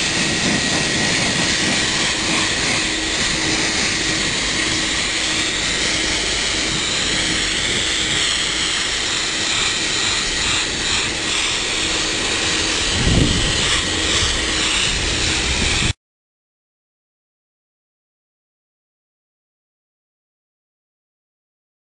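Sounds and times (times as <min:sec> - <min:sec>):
dog dryer blowing air: 0:00.0 - 0:16.0.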